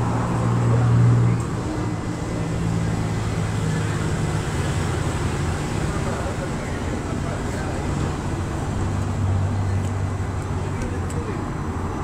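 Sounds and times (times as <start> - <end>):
background traffic noise: 0.0 - 12.0.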